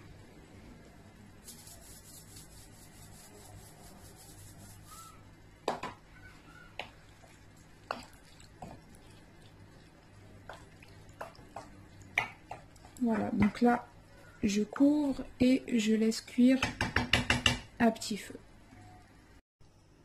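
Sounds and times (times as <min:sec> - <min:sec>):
wooden spoon knocking and scraping pan: 0:11.2 - 0:13.8.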